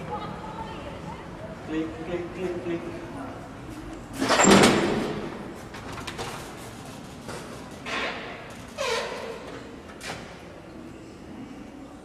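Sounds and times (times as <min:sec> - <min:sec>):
door banging shut: 0:04.2 - 0:05.4.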